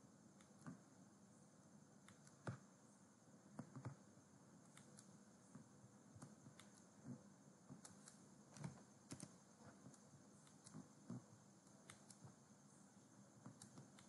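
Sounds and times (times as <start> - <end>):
low room hiss: 0.0 - 14.0
faint keyboard keystrokes: 3.5 - 4.0, 6.2 - 12.4.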